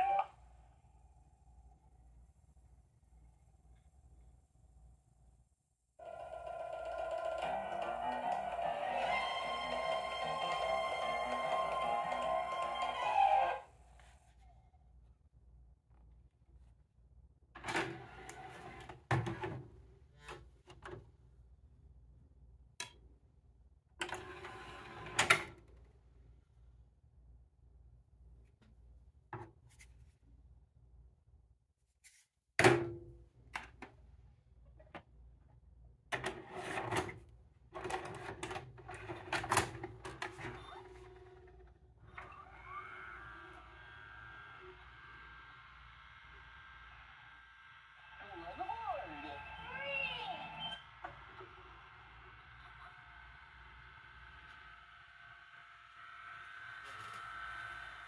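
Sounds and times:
disc tray motor: 6.0 - 13.6, 40.2 - 58.0
tape mechanism clattering and whirring: 50.8 - 58.0.

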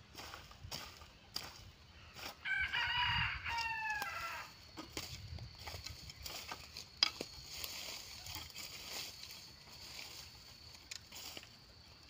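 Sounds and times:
rooster crowing: 2.4 - 4.7.

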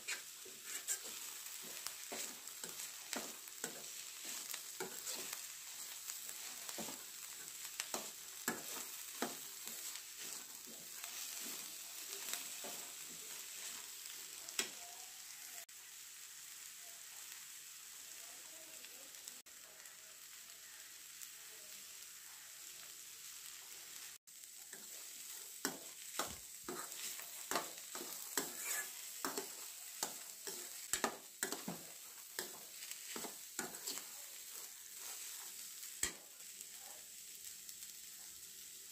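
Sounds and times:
steel spoon scraping a pan: 0.0 - 13.9, 24.7 - 36.3
greens sizzling in a pan: 0.0 - 38.9.

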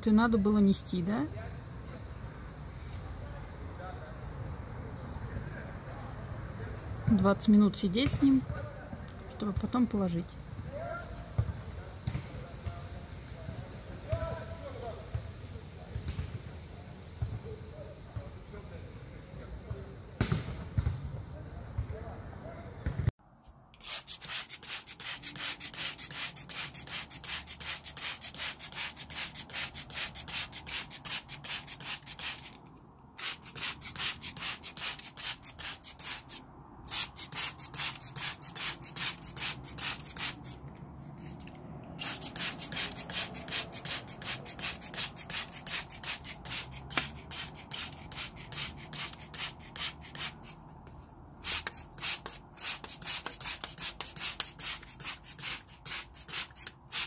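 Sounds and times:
sponge scrubbing plastic basin: 23.8 - 32.5, 42.0 - 50.3.

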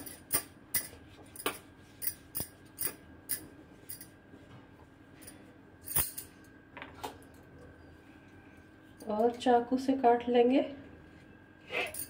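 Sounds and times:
faint high hum: 0.0 - 12.0
bangles jingling: 5.9 - 6.3, 11.8 - 12.0.

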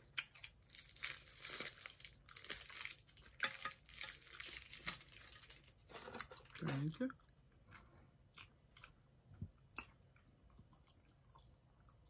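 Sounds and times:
plastic candy wrapper crinkling: 0.0 - 7.0.

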